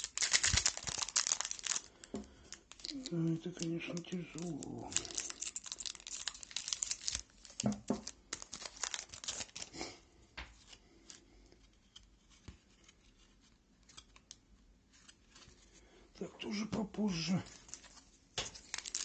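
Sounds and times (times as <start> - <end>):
foil pack crinkling: 0.0 - 10.0, 17.1 - 19.0
wrapper and cards rustling: 0.0 - 19.0.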